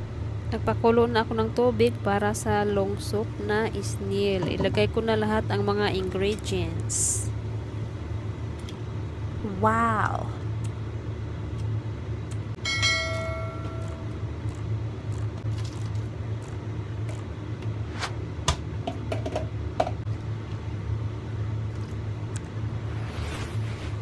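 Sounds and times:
steady low hum: 0.0 - 24.0
bell-like ding: 12.6 - 14.1.

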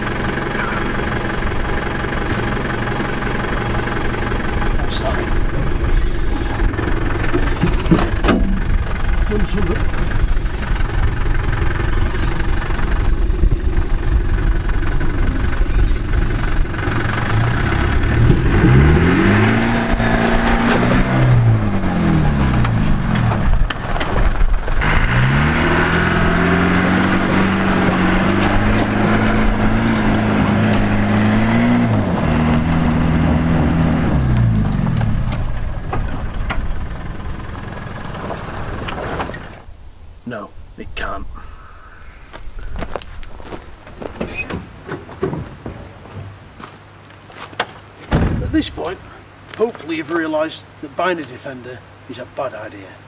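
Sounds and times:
diesel engine revving under load: 0.0 - 39.7.

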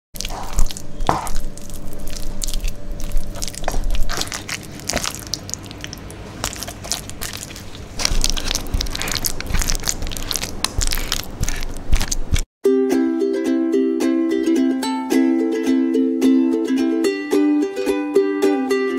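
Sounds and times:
spatula stirring sticky mixture: 0.2 - 12.4
biscuit pieces crunching: 0.2 - 12.5.

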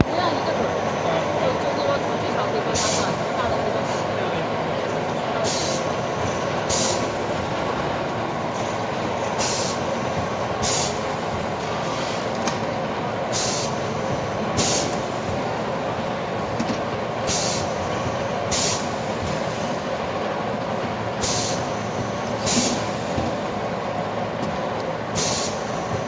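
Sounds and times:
short machine hisses: 6.7 - 7.0, 9.4 - 9.8, 10.6 - 11.0, 13.4 - 13.8, 14.6 - 15.0, 17.3 - 17.7, 21.2 - 21.7, 25.2 - 25.9.

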